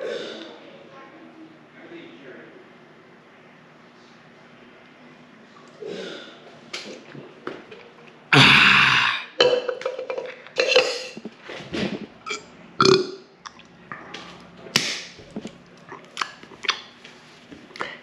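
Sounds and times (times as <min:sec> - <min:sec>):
burps: 0:08.3 - 0:09.8, 0:11.9 - 0:14.1.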